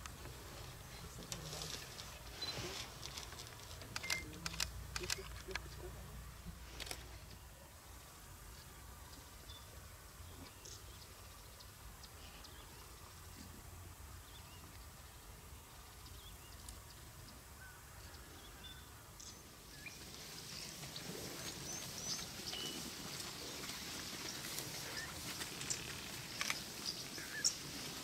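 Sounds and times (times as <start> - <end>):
low background noise: 0.0 - 28.0
sharp clicks: 3.8 - 5.7.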